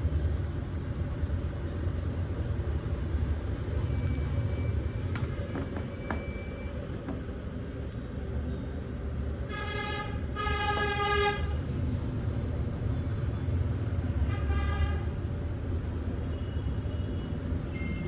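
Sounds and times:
low traffic rumble: 0.0 - 18.0
vehicle horn honking: 9.5 - 11.5.

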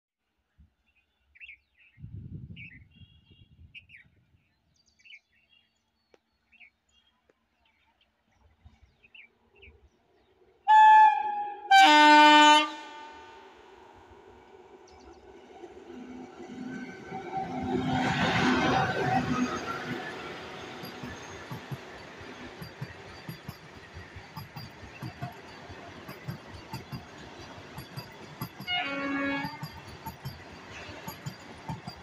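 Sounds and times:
locomotive horn blasts: 10.7 - 13.5, 28.7 - 29.8
train rumbling: 10.7 - 32.0
birds chirping: 14.8 - 32.0.

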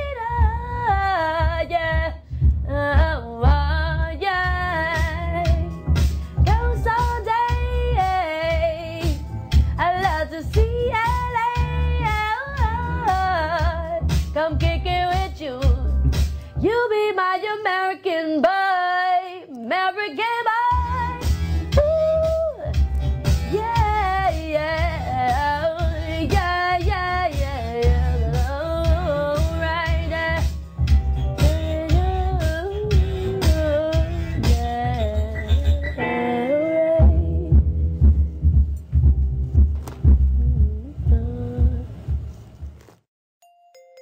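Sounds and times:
bass-heavy beat: 0.0 - 16.4, 20.7 - 36.0, 36.9 - 42.8
woman singing vocal runs: 31.4 - 37.7, 40.3 - 42.1.

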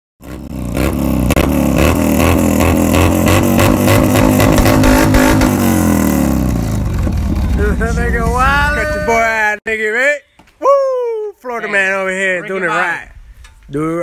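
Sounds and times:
dirt bike engine revving: 0.2 - 9.2.

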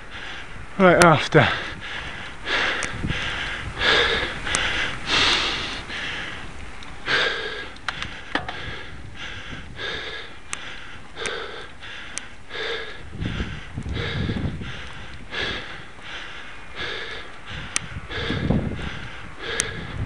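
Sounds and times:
person panting heavily: 0.0 - 0.7, 1.4 - 20.0
faint clicks: 2.4 - 3.1, 4.0 - 8.8, 10.0 - 12.9, 13.6 - 14.1, 14.8 - 18.0, 19.5 - 19.8.

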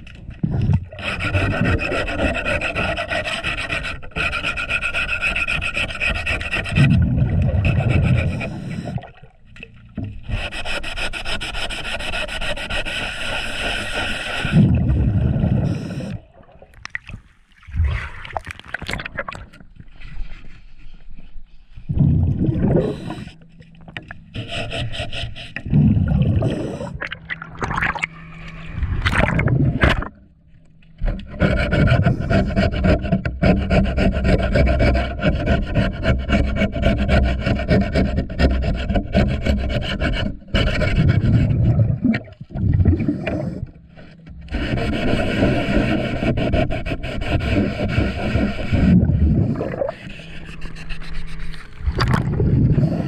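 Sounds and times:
scrub pad scraping hull underwater: 0.0 - 53.0.

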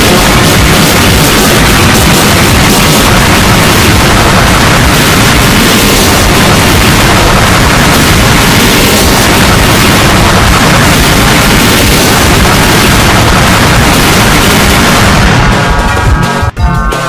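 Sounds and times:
distorted stacked alarm tones: 0.0 - 17.0.

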